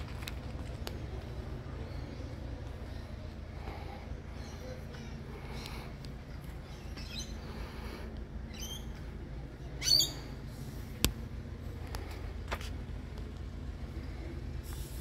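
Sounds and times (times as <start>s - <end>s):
low background rumble: 0.0s - 15.0s
faint bird chirps: 6.6s - 7.7s, 8.4s - 10.4s
bird squawk: 9.8s - 10.3s.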